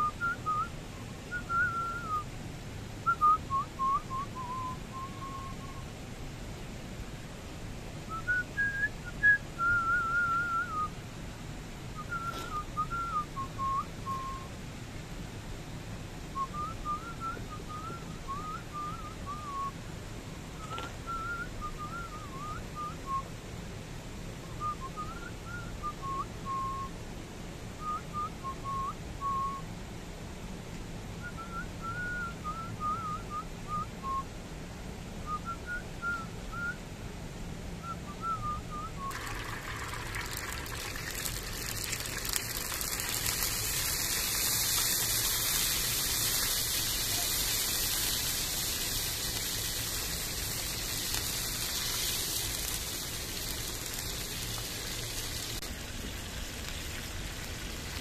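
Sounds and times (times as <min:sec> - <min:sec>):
dough frying in hot oil: 0:39.1 - 0:58.0.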